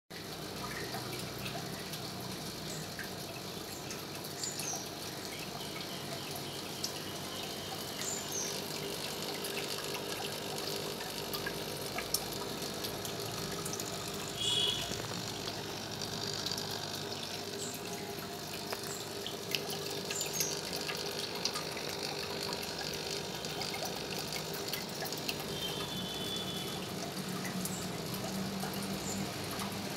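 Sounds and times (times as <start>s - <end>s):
aquarium water bubbling: 0.1s - 29.9s
small pops and ticks: 9.3s - 22.6s.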